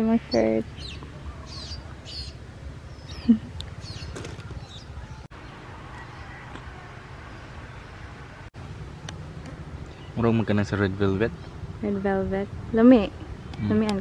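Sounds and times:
small birds chirping: 0.0 - 8.4, 9.0 - 14.0
low steady rumble: 0.0 - 14.0.

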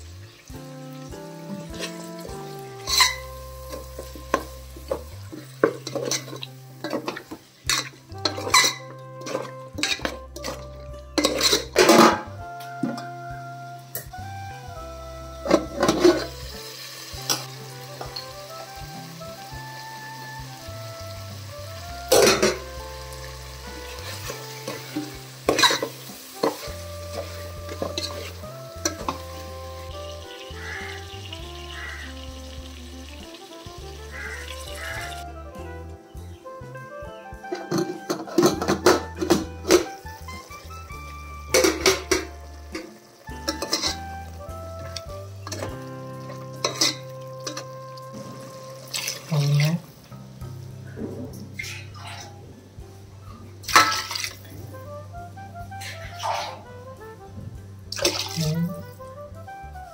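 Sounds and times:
masala sizzling: 0.0 - 59.9
spoon scraping and knocking metal pot: 1.5 - 12.3, 15.5 - 16.4, 22.1 - 22.7, 24.0 - 29.4, 37.5 - 39.9, 41.5 - 44.0, 44.8 - 47.8, 53.7 - 54.4.

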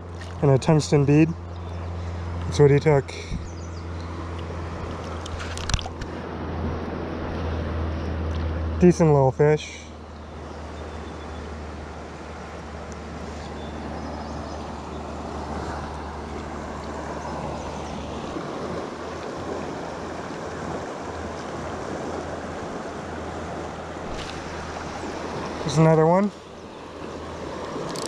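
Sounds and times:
fast-flowing river rushing: 14.6 - 28.0.

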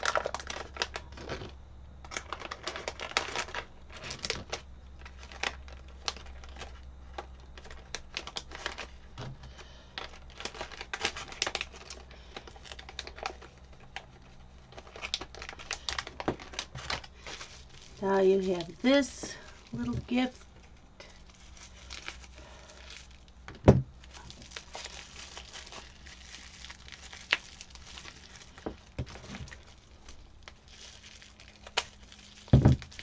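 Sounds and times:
plastic bag crinkling: 0.0 - 33.0.

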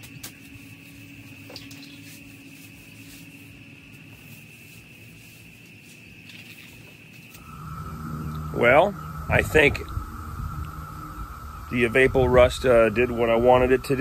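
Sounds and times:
mop scrubbing wet concrete: 0.0 - 6.9
low hum: 7.4 - 14.0
steady high-pitched tone: 7.4 - 14.0.

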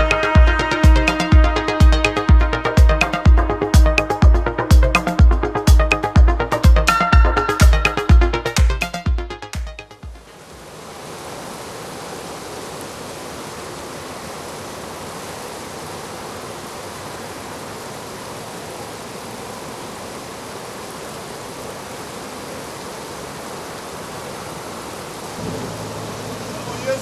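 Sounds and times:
fast-flowing river water: 10.0 - 27.0.

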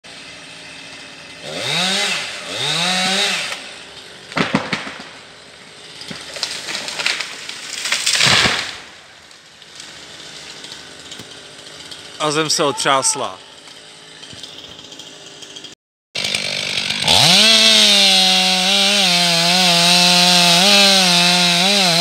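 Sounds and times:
chainsaw revving: 0.1 - 5.0, 9.7 - 12.6, 13.2 - 22.0
sharp cracks and knocks: 4.2 - 5.3, 5.9 - 12.0.

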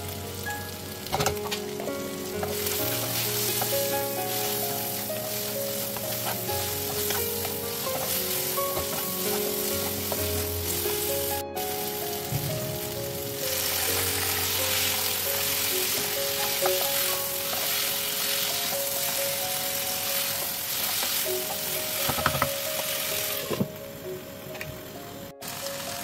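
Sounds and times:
food sizzling in a pan: 0.0 - 26.0
light background melody: 0.0 - 26.0
spatula stirring in a pan: 2.3 - 11.8, 13.4 - 23.4.

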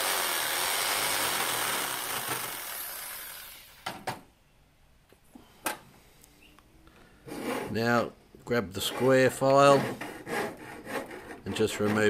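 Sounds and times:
jigsaw cutting metal: 0.0 - 3.8.

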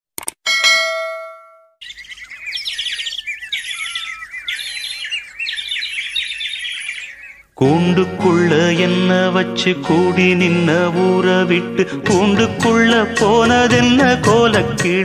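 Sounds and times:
small birds chirping: 1.8 - 7.8.

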